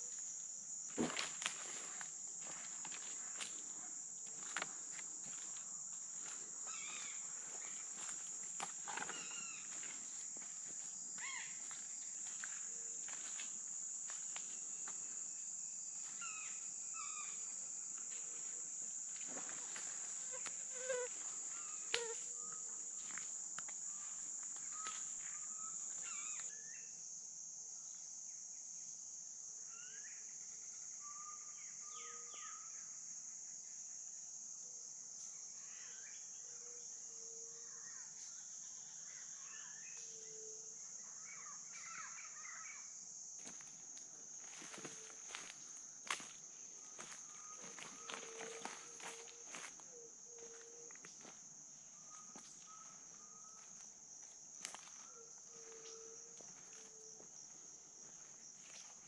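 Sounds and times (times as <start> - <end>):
high-pitched insect chorus: 0.0 - 59.0
bird calls: 8.9 - 9.8
footsteps on leaf litter: 47.0 - 49.7.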